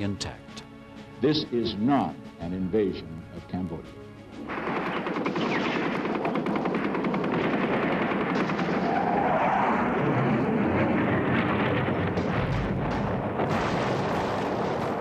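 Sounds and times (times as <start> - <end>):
rapid automatic gunfire: 4.5 - 9.9.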